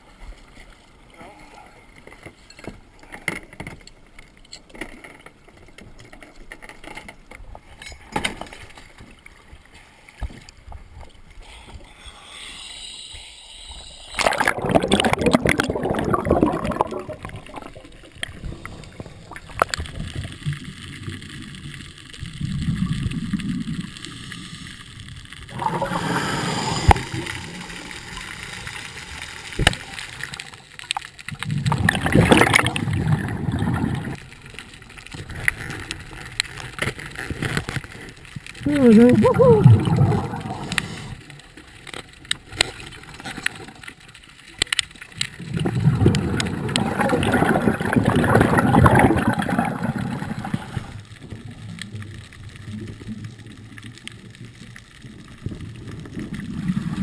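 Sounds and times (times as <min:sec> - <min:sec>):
diver's exhaled bubbles gurgling: 0:14.1 - 0:24.0, 0:25.5 - 0:29.0, 0:31.3 - 0:34.2, 0:38.6 - 0:41.2, 0:45.2 - 0:57.0
muffled underwater sound: 0:38.6 - 0:41.2, 0:45.5 - 0:57.0.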